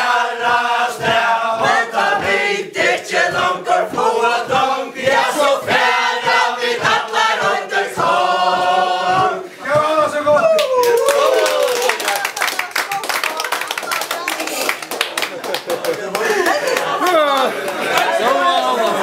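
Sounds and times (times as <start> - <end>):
group singing together: 0.0 - 10.0
stamping dance steps on floor: 0.0 - 11.5.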